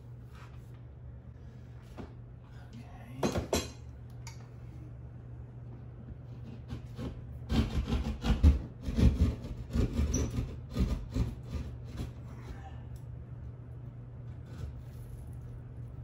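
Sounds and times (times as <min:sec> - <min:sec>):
hand saw cutting drywall: 0:06.3 - 0:12.4.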